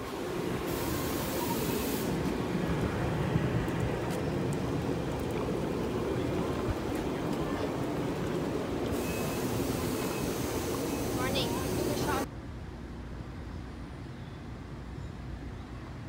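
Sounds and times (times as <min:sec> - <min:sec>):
high hiss: 0:00.0 - 0:02.6, 0:09.0 - 0:12.2
train rumbling past: 0:00.0 - 0:16.0.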